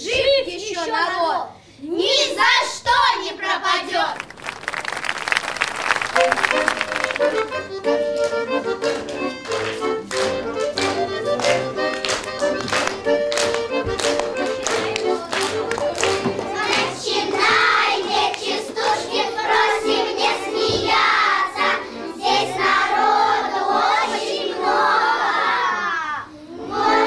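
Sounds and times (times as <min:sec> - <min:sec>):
lively folk dance tune: 0:04.1 - 0:25.1
children singing: 0:14.8 - 0:27.0.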